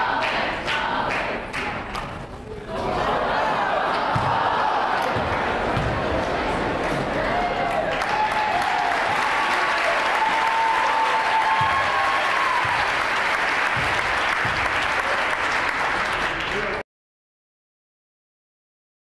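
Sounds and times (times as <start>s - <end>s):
crowd applauding: 3.6s - 16.8s
basketball bouncing on floor: 5.1s - 6.0s, 13.8s - 14.7s.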